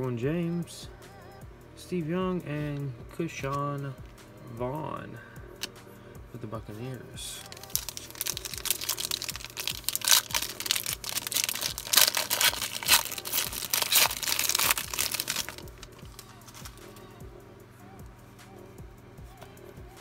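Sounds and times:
foil wrapper crinkling and tearing: 7.4 - 17.0
soft rustles of cards: 7.4 - 17.2.

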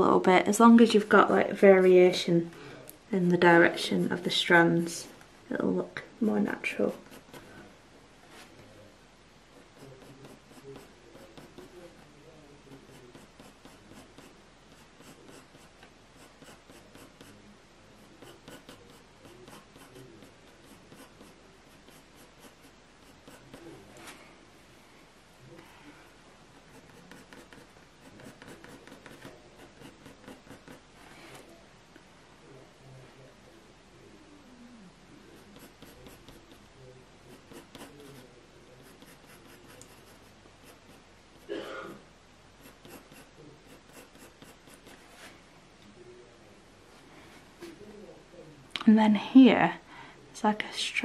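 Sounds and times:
pencil scratching on paper: 6.6 - 7.6, 9.5 - 12.1, 12.7 - 17.4, 18.0 - 23.8, 25.6 - 31.1, 35.3 - 36.7, 37.3 - 41.5, 42.6 - 45.3.

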